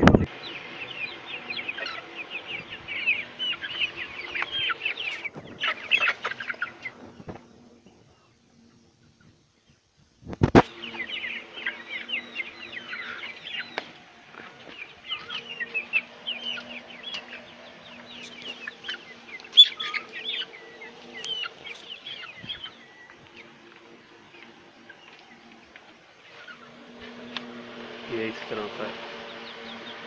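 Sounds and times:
chicks peeping and clucking: 0.0s - 30.0s
steady low hum: 0.0s - 30.0s.

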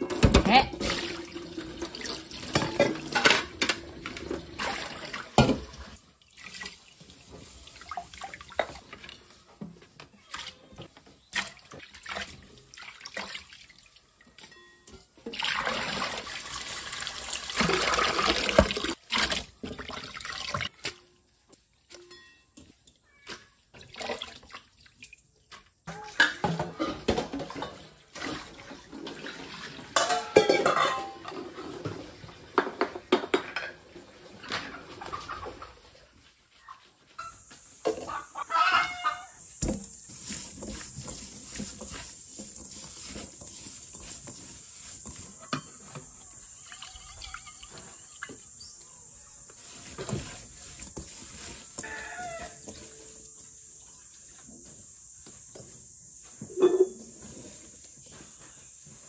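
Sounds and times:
metal bowls clinking: 0.0s - 4.4s, 30.0s - 31.7s
tap water running into sink: 15.3s - 20.7s.

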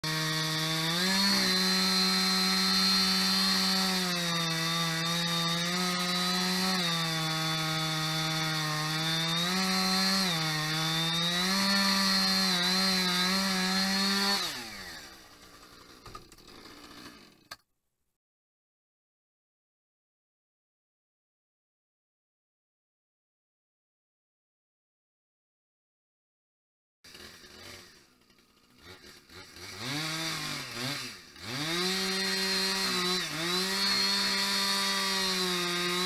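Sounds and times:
chainsaw cutting wood: 0.0s - 17.6s, 27.1s - 36.0s.

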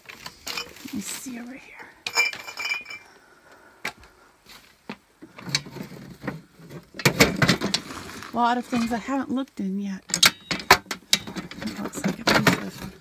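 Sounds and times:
knocks and rattles of objects: 0.0s - 1.4s, 4.8s - 9.3s, 10.1s - 13.0s
metal clink: 2.0s - 3.1s, 10.1s - 11.6s.

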